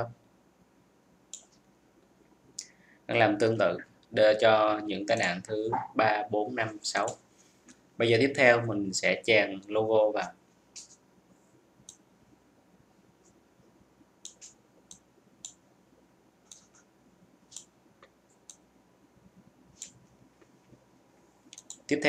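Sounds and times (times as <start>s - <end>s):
computer mouse clicking: 1.3s - 1.6s, 11.8s - 12.0s, 14.2s - 15.6s, 16.4s - 16.9s, 17.5s - 18.7s, 19.7s - 20.5s, 21.5s - 21.9s.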